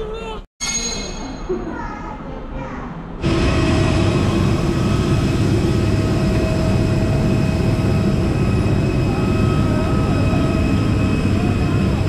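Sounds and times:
jet airliner engine rumble: 3.2s - 12.0s
jet engine whine: 3.2s - 12.0s.

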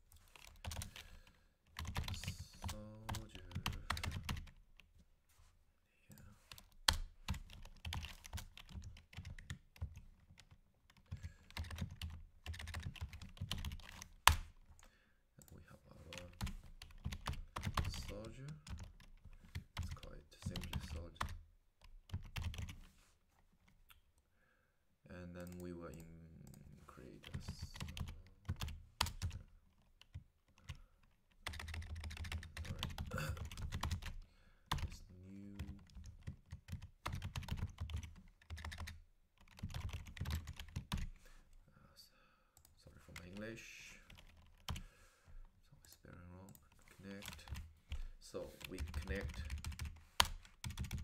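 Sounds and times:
computer keyboard typing: 0.2s - 4.9s, 6.1s - 14.4s, 16.1s - 22.8s, 27.3s - 41.1s, 44.0s - 44.9s, 45.9s - 48.0s, 48.6s - 51.0s.

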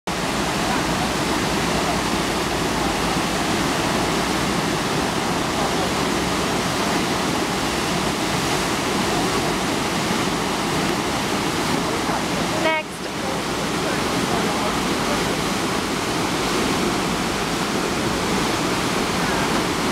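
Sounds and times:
churning whitewater rushing: 0.1s - 19.9s.

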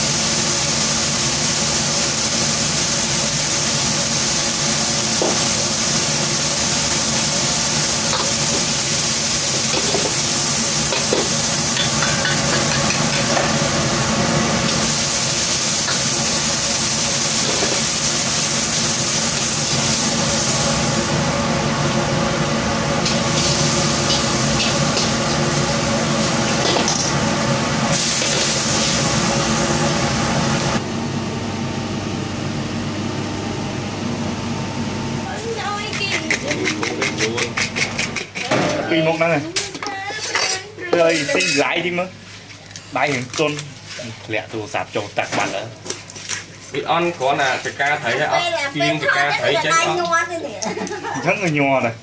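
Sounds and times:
food sizzling in a wok: 0.0s - 30.8s
gas burner hum: 0.0s - 52.0s
ladle stirring in a wok: 23.0s - 27.2s.

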